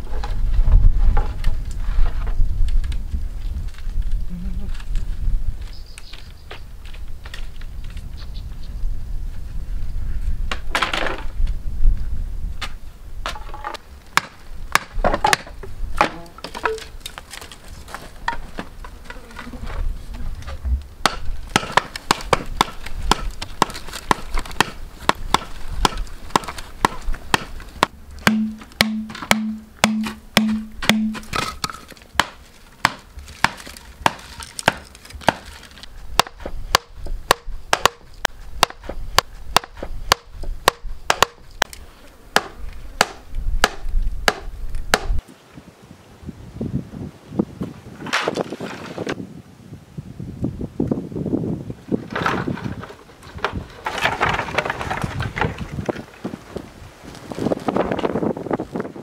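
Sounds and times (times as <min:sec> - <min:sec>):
stone knocking on bamboo post: 0:28.2 - 0:35.5.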